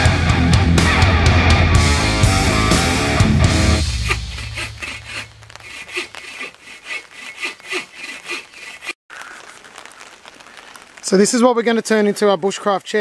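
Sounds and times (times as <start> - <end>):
rock music: 0.0 - 4.6
hand saw cutting log: 3.8 - 9.0.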